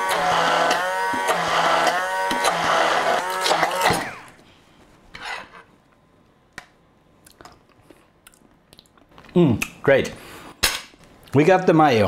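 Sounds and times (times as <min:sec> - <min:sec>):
stick blender motor running: 0:00.0 - 0:04.4.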